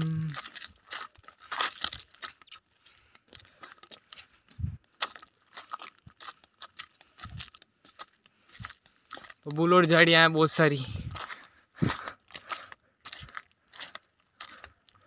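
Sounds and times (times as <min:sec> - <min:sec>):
footsteps crunching on stony path: 0:00.0 - 0:15.0.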